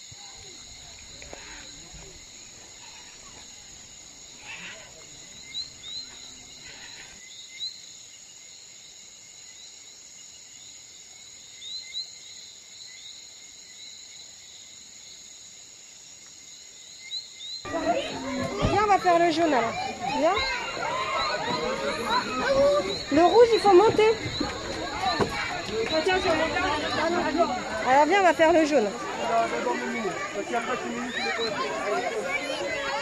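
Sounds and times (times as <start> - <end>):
insects droning: 0.0 - 33.0.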